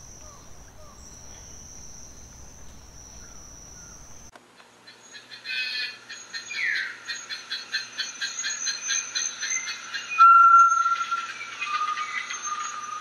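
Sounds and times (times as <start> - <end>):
high-pitched insect trill: 0.0 - 4.3
pulsing insect chorus: 0.0 - 4.3.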